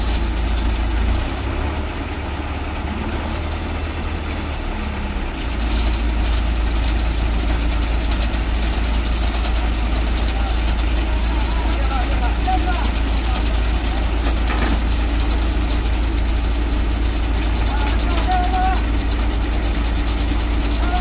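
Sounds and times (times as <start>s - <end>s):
heavy diesel engine running: 0.0s - 21.0s.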